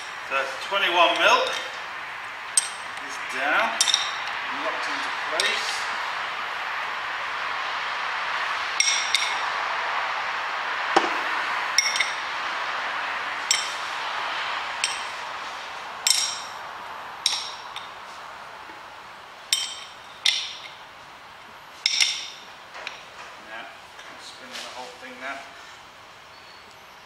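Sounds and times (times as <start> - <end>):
steady background hiss: 0.0 - 27.0
spanner clinking on metal: 3.8 - 4.4, 11.8 - 12.2, 13.5 - 13.7, 16.0 - 16.6, 17.2 - 17.9, 19.5 - 20.8, 21.8 - 23.0.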